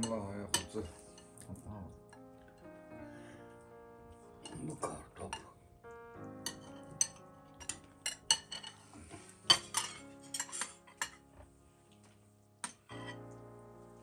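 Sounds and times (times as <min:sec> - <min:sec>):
cutlery clinking on plates: 0:00.0 - 0:01.3, 0:06.5 - 0:11.3, 0:12.6 - 0:13.2.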